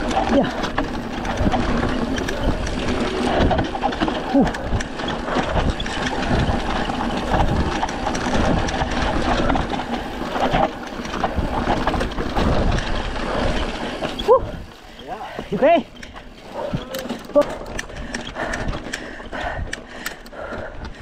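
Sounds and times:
bike rattling and knocking: 0.0s - 21.0s
bike tyres rolling over dirt: 0.0s - 21.0s.

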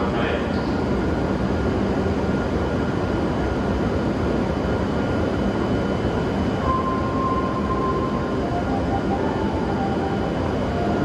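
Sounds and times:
train equipment running: 0.0s - 11.0s
faint high whine: 6.4s - 11.0s.

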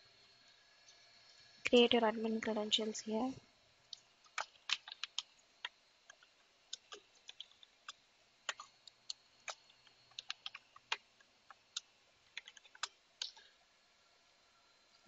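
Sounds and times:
faint keyboard typing: 3.9s - 13.6s.

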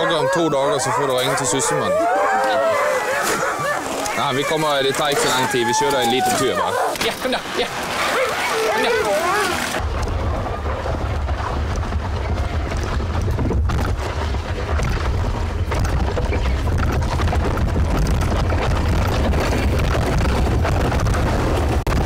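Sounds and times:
sled runners scraping snow: 0.0s - 22.0s
wind buffeting microphone: 9.6s - 22.0s.

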